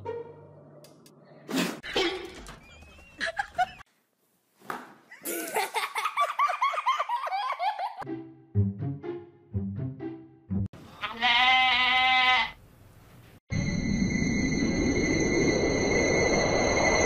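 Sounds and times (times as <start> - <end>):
person laughing: 2.9 - 3.8, 5.1 - 8.0.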